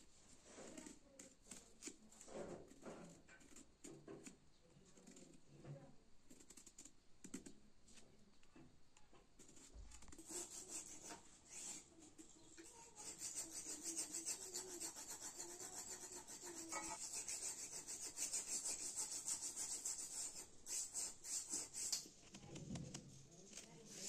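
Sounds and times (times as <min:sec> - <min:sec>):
rapid scratching strokes: 0:09.5 - 0:11.9, 0:12.6 - 0:22.1.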